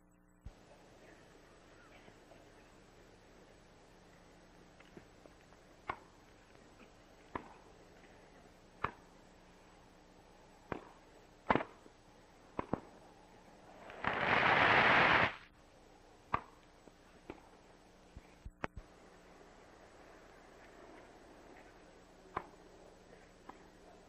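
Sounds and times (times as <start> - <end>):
brief rush of noise: 13.8 - 15.5.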